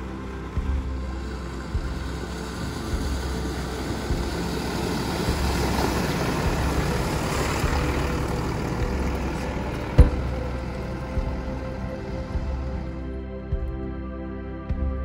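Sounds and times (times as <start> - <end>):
vehicle engine running: 0.0 - 13.9
water splashing off tyres: 0.8 - 12.9.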